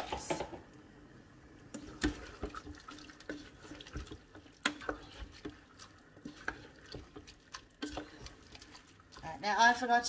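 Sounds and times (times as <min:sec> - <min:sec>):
wet sloshing and squelching: 0:01.7 - 0:09.4.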